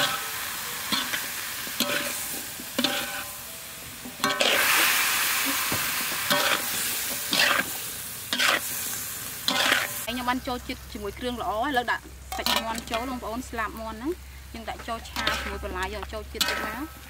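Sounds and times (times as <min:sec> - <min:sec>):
vegetables sizzling in a wok: 0:00.0 - 0:17.0
spatula clanking against pan: 0:00.9 - 0:03.3, 0:04.2 - 0:04.6, 0:05.7 - 0:07.7, 0:15.1 - 0:17.0
metal spatula scraping pan: 0:00.9 - 0:03.4, 0:04.1 - 0:04.9, 0:05.5 - 0:08.7, 0:09.5 - 0:10.1, 0:14.8 - 0:17.0.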